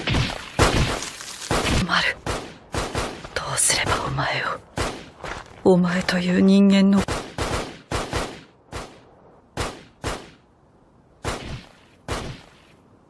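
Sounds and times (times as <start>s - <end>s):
gunshots: 0.0s - 3.2s, 4.7s - 5.2s, 7.0s - 9.0s, 9.6s - 10.4s, 11.2s - 12.7s.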